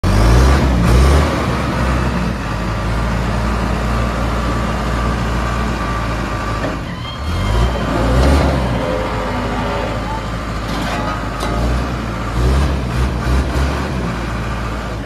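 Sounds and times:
diesel engine running: 0.0 - 15.0
hydraulics raising loader bucket: 5.9 - 15.0.

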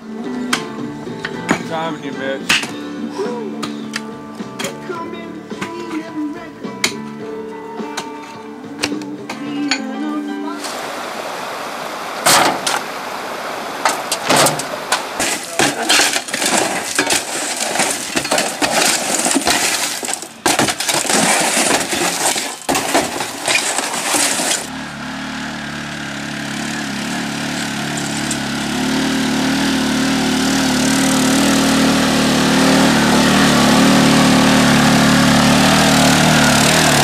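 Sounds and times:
gravel clattering: 13.7 - 24.8, 26.2 - 28.8, 33.0 - 37.0
shovels scraping: 13.8 - 24.8, 27.5 - 28.5, 36.0 - 37.0
atv engine running: 24.4 - 37.0.

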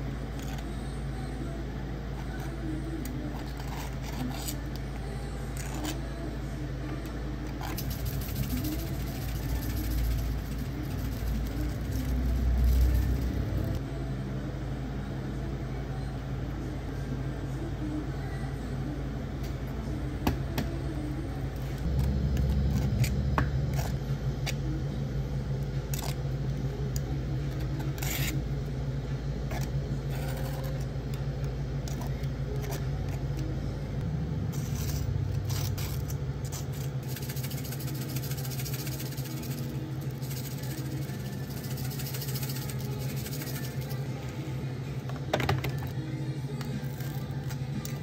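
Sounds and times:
machine hum: 0.0 - 48.0
deep rumble: 19.7 - 26.0, 31.4 - 37.0.

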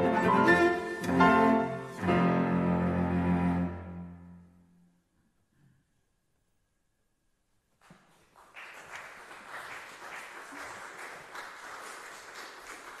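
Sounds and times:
audience applauding: 8.1 - 13.0.

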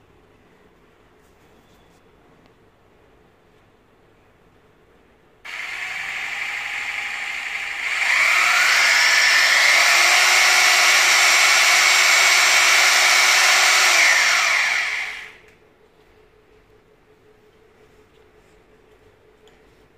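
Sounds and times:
hammer drill motor whining: 5.5 - 15.4.

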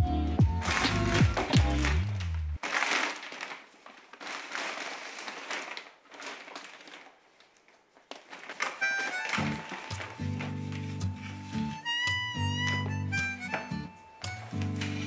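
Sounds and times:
background music: 0.0 - 2.5, 8.8 - 15.0
plastic bag rustling: 0.5 - 15.0.

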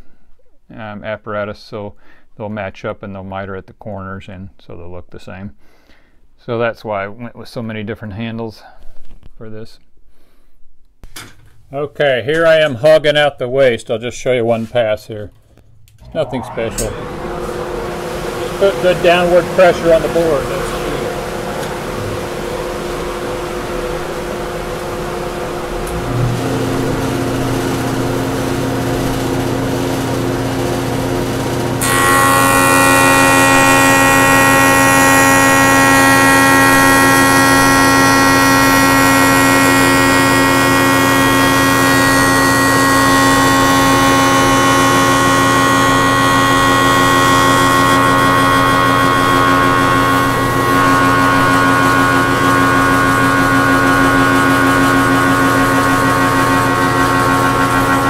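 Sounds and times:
low hum: 15.5 - 58.0
router whining and cutting: 16.0 - 58.0.

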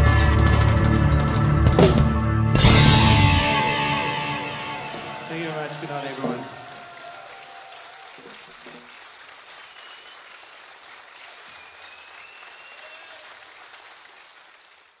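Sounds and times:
audience applauding and cheering: 3.3 - 15.0
high whistles: 9.5 - 10.4, 11.1 - 13.3.

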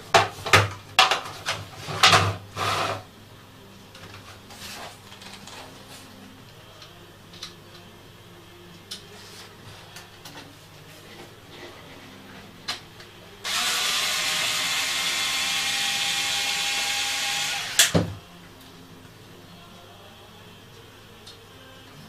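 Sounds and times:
cordless screwdriver running: 13.4 - 17.9.

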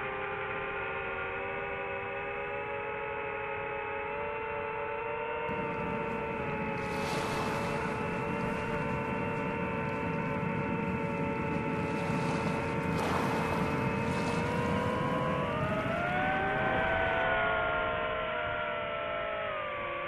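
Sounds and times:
rushing noise: 5.5 - 17.3.

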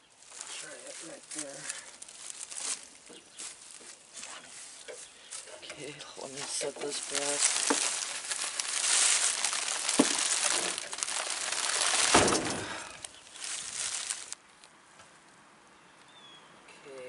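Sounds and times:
crinkling and rustling handling: 0.0 - 14.7
loud thump: 12.0 - 12.9.

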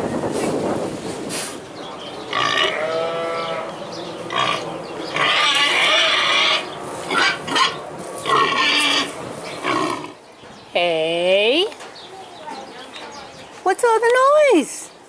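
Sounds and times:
boar calling loudly: 4.3 - 10.2.

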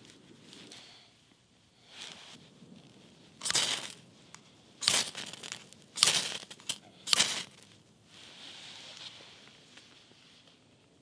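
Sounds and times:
ferro rod scraping: 3.4 - 4.0, 4.8 - 7.7.

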